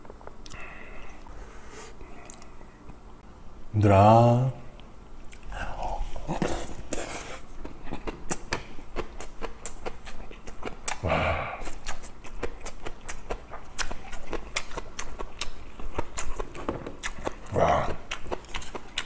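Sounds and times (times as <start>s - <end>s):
chewing with wet mouth clicks: 5.2s - 5.5s, 7.5s - 11.0s, 11.6s - 19.0s.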